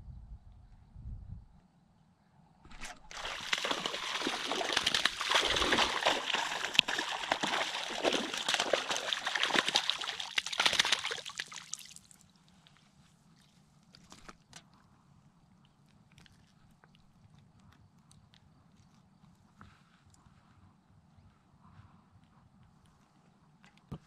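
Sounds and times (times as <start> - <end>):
water splashing and sloshing: 2.7 - 12.8.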